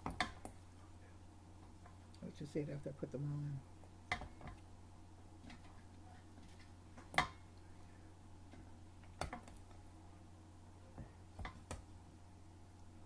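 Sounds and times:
knocks and clicks in fryer basket: 0.0s - 0.6s, 4.1s - 4.6s, 9.1s - 9.6s
steady low hum: 0.0s - 13.0s.

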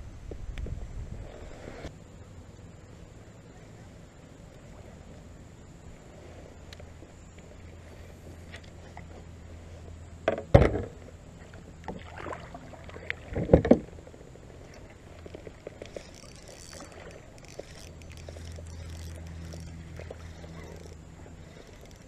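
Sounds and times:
knocks against kayak hull: 10.2s - 11.0s.

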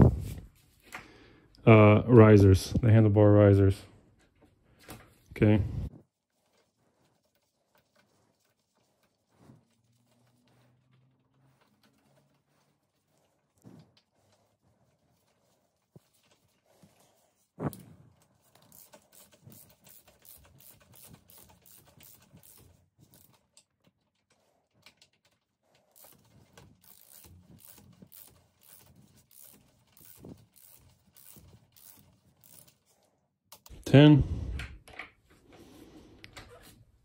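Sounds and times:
hand ratchet clicking: 18.5s - 23.6s, 25.9s - 32.8s.

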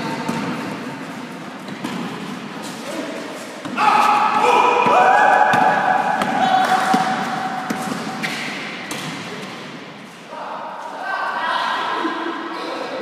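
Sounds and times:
basketball bouncing: 3.6s - 9.6s.

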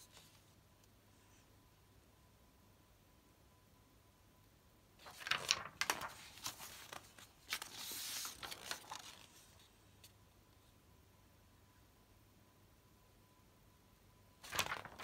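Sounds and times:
paper rustling and crinkling: 5.0s - 10.1s, 14.4s - 15.0s.

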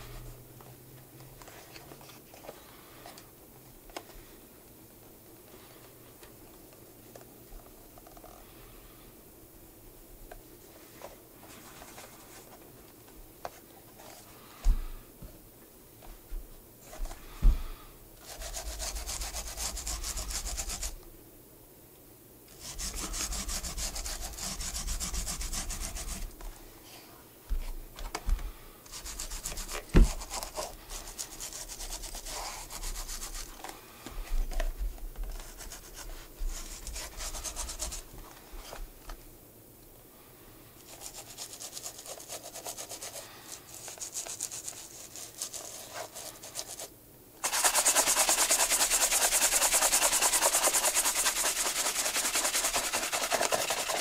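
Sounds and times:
brush rubbing a shoe: 18.2s - 21.0s, 22.6s - 26.3s, 28.9s - 33.7s, 35.3s - 38.1s, 40.8s - 54.0s.

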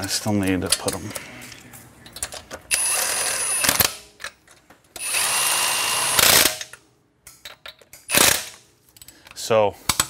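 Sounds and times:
impact wrench whining: 2.7s - 4.0s, 5.0s - 6.7s, 8.1s - 8.6s.

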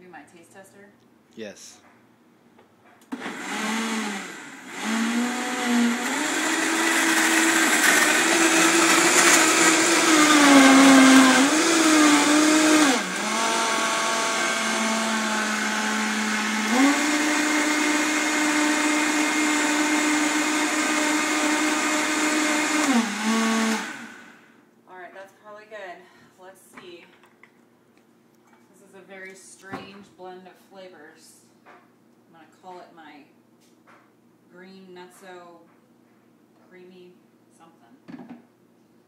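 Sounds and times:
blender motor running: 3.1s - 24.5s.

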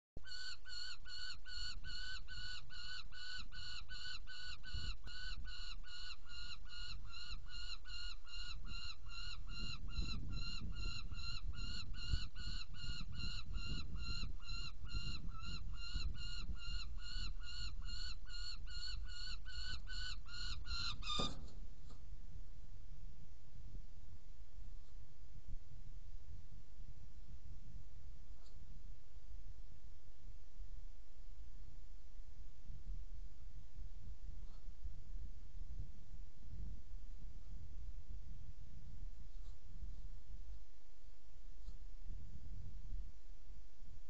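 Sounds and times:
falcon calling: 0.2s - 21.4s
wind rumble on microphone: 4.5s - 44.0s.

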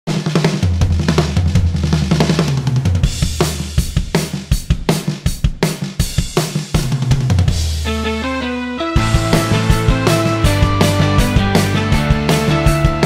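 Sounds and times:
instrumental music with drum kit: 0.1s - 13.0s
bass line: 7.4s - 13.0s.

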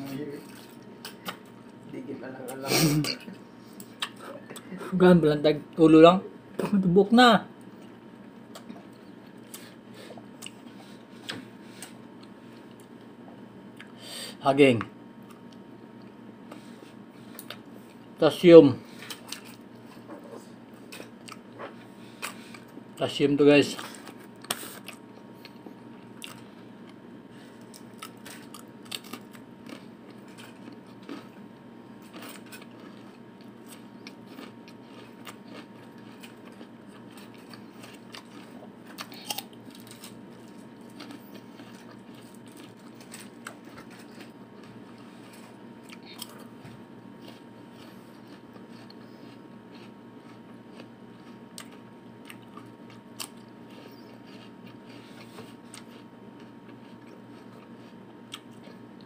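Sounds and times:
faint hum: 0.0s - 59.0s
chewing apple slices: 23.7s - 59.0s.

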